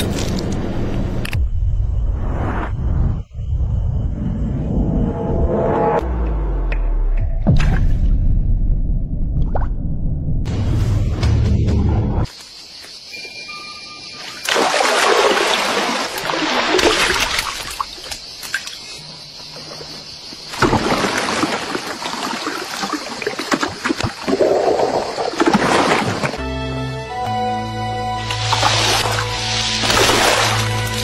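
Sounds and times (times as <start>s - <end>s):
water splashing and rushing: 14.2s - 18.8s, 19.5s - 26.4s, 28.2s - 31.0s.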